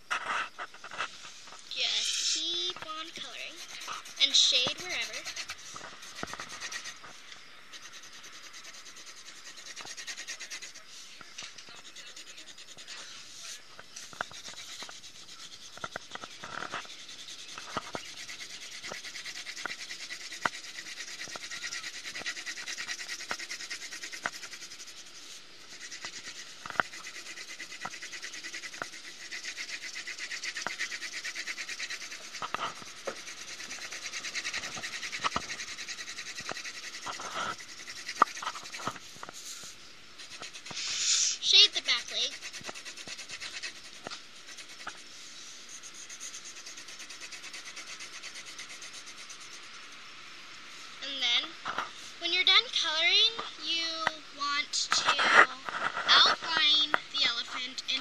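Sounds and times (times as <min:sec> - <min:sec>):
pencil shading on paper: 0:01.8 - 0:07.1, 0:07.7 - 0:39.6, 0:40.2 - 0:45.0, 0:45.6 - 0:49.7.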